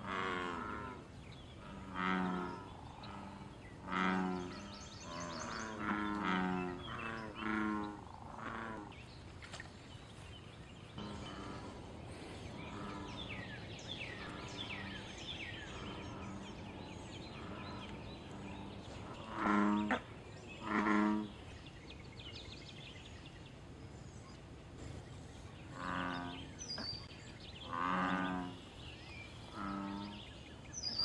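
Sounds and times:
bullfrogs calling: 0:27.6 - 0:28.8.

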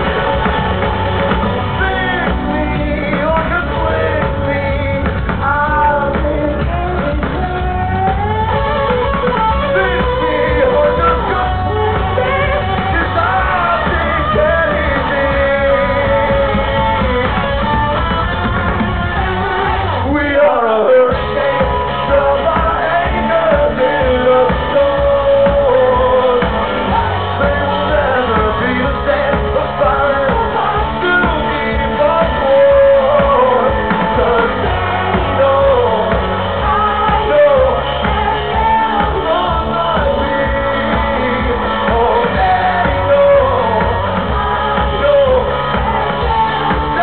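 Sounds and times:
drums: 0:00.0 - 0:47.0
electric guitar: 0:00.0 - 0:47.0
male lead singer: 0:00.0 - 0:47.0
rock band playing live: 0:00.0 - 0:47.0.

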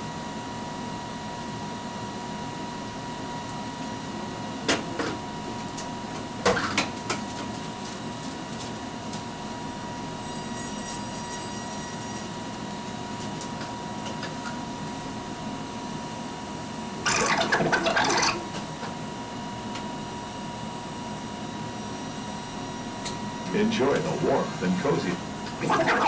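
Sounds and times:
videotape machines whirring: 0:16.8 - 0:19.0, 0:21.8 - 0:26.0.

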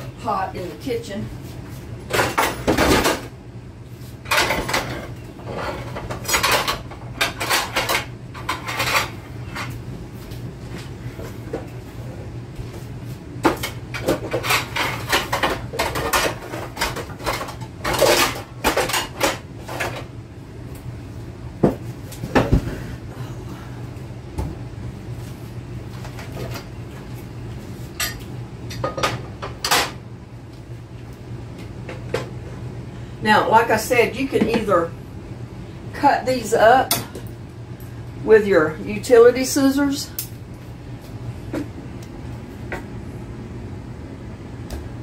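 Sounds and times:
pots and pans clattering: 0:04.3 - 0:09.7, 0:13.5 - 0:20.0.

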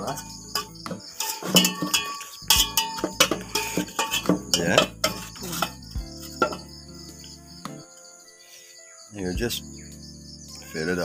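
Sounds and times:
metal spoon scraping metal pot: 0:00.0 - 0:06.8.

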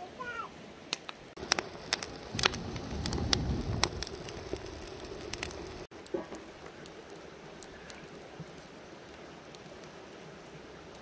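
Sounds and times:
steady hiss: 0:00.0 - 0:11.0
crackling and popping: 0:00.9 - 0:11.0.

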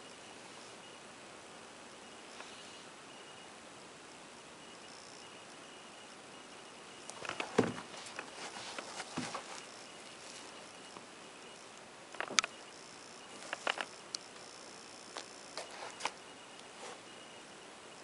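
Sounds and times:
faint steady hiss: 0:00.0 - 0:18.0
sneaker being handled: 0:07.2 - 0:09.6.

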